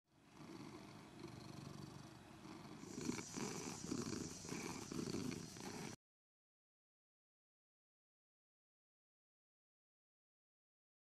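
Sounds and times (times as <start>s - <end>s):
cat purring: 0.3s - 6.0s.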